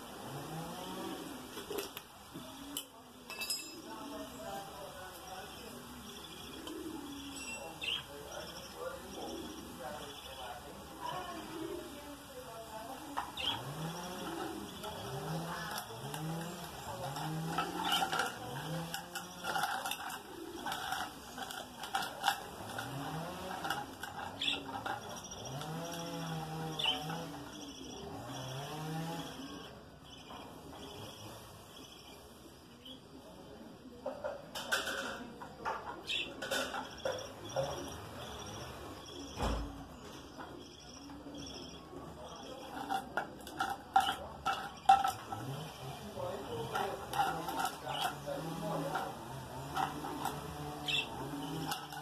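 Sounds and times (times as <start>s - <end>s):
low cooing calls: 5.4s - 10.4s, 13.2s - 30.0s
budgerigars chattering: 49.8s - 52.0s.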